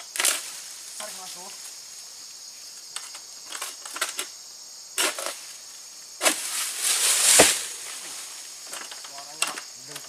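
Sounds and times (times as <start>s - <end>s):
high insect buzz: 0.0s - 10.0s
blade scraping through palm fronds: 6.2s - 8.6s.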